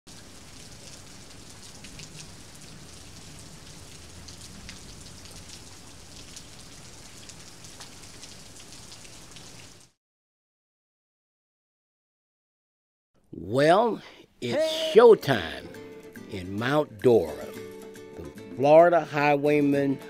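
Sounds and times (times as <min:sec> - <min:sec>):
rain falling: 0:00.1 - 0:10.0
raindrop taps: 0:00.2 - 0:09.9.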